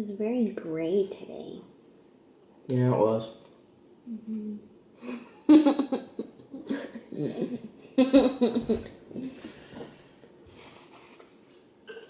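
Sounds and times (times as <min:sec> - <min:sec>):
people laughing: 0:05.5 - 0:09.4.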